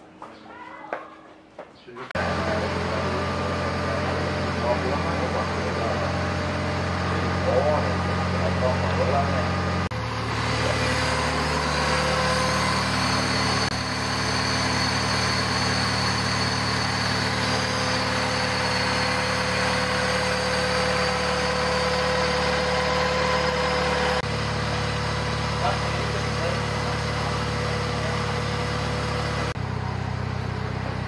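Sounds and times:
car engine idling: 2.2s - 31.0s.

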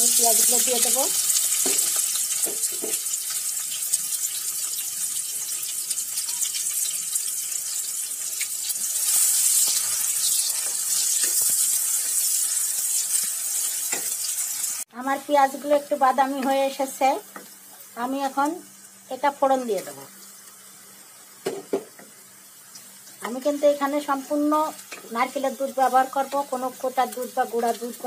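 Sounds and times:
onions sizzling in oil: 0.0s - 28.0s.

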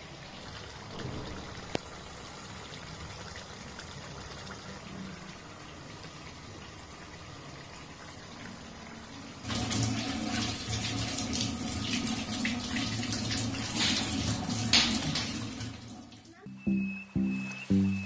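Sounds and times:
tap running into sink: 13.3s - 15.5s.

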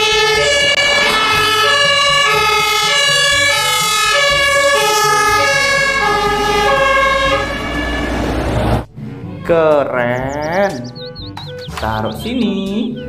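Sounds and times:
fire engine two-tone siren: 0.0s - 8.9s
truck engine rumble: 0.0s - 12.5s.

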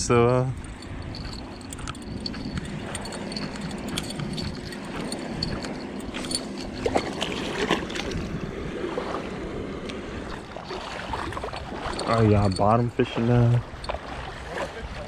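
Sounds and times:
wind on microphone: 0.0s - 15.0s
handling knocks and rustles: 0.6s - 8.2s
small waves on sandy shore: 0.6s - 15.0s.

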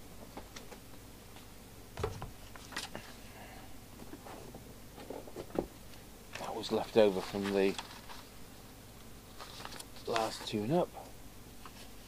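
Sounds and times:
paper rustling and knocking: 2.0s - 2.9s.

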